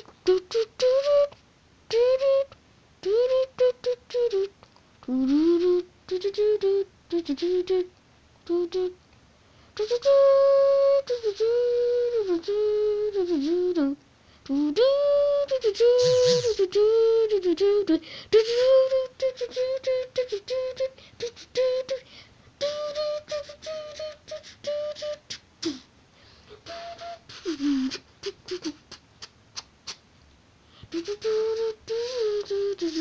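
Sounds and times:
wordless voice-like melody: 15.8 - 16.7.

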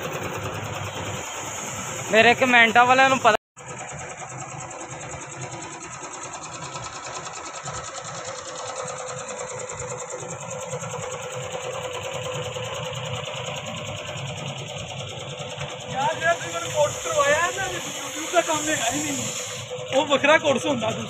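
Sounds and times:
piston air compressor running: 0.0 - 21.0.

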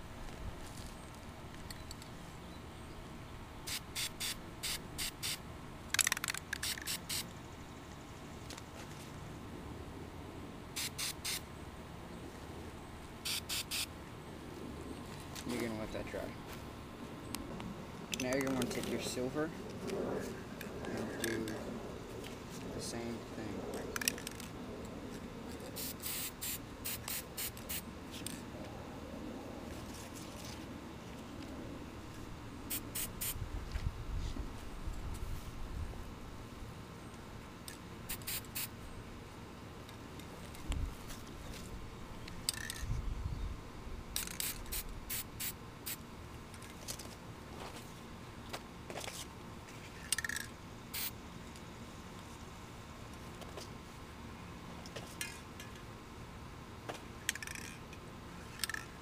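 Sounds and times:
spray can hissing bursts: 3.7 - 5.4, 6.3 - 7.3, 10.8 - 11.4, 13.2 - 13.9, 25.8 - 27.8, 32.7 - 33.4, 38.1 - 38.7, 44.2 - 46.0, 50.9 - 51.1.

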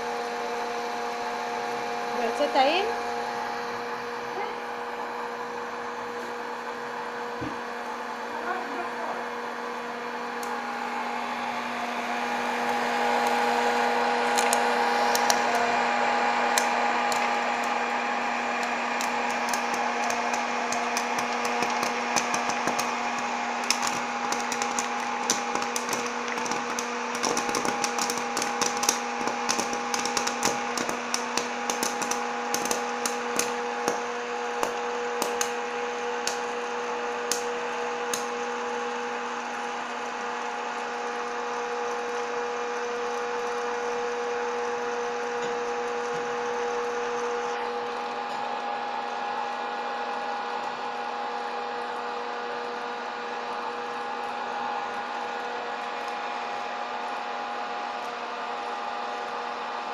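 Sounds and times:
popcorn popper humming: 0.0 - 59.9
popcorn kernels popping: 14.3 - 15.6, 16.4 - 35.6, 36.2 - 36.5, 37.2 - 38.4.

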